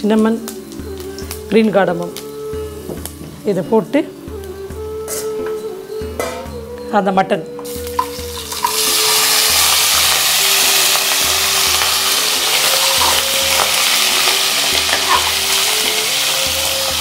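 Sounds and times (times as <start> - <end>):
meat sizzling in hot oil: 7.6 - 17.0.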